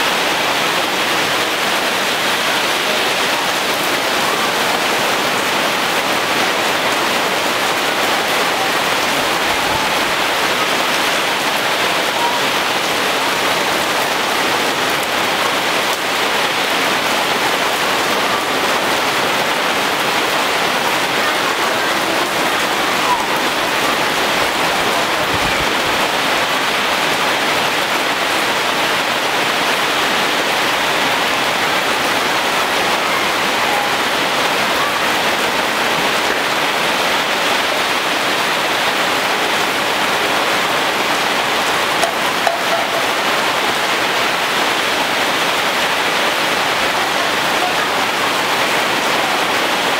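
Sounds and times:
heavy rain on leaves: 0.0s - 49.9s.

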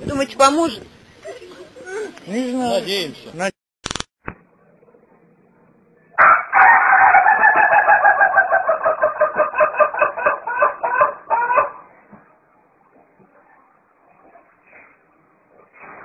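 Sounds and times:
chicken calling: 6.2s - 11.9s.

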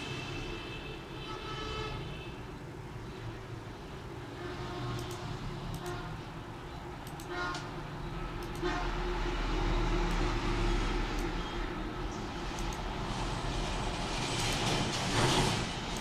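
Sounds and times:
traffic engine rumble: 2.6s - 16.0s
car horn toots: 7.2s - 9.1s.

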